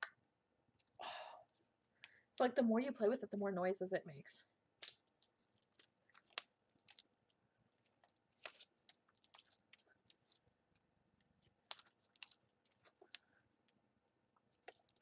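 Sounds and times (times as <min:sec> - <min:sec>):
slime squelching: 0:00.7 - 0:01.7, 0:04.7 - 0:13.8, 0:14.4 - 0:15.0.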